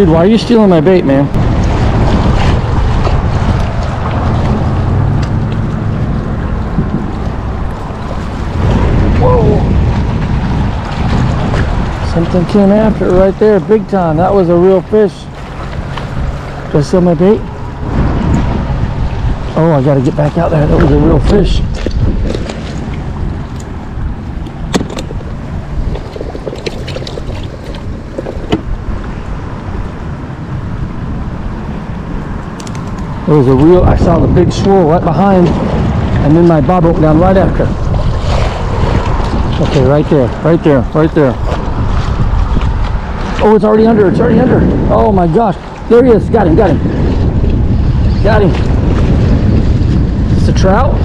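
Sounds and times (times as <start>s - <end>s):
choppy water: 0.0s - 51.0s
wind buffeting microphone: 0.0s - 51.0s
fishing tackle clicks: 32.4s - 33.1s.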